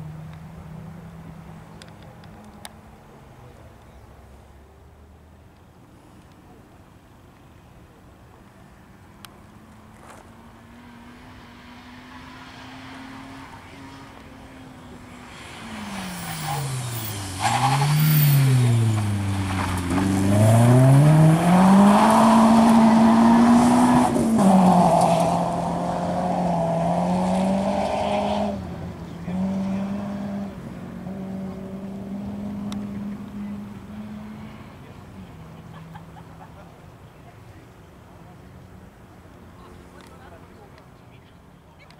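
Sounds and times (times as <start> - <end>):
rally car engine accelerating: 10.6 - 34.8.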